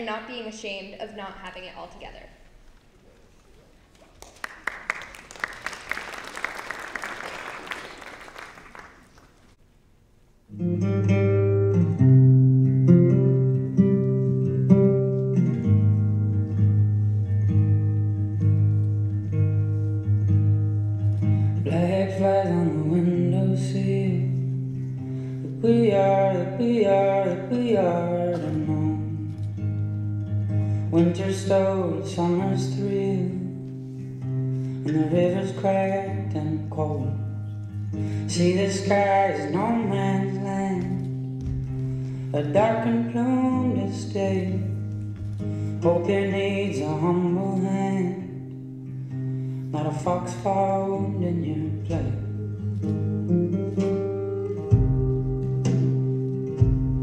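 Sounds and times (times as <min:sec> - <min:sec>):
audience applause: 0:03.9 - 0:09.5
acoustic guitar song: 0:10.5 - 0:57.0
person singing: 0:25.4 - 0:29.4, 0:38.2 - 0:41.2, 0:49.7 - 0:57.0.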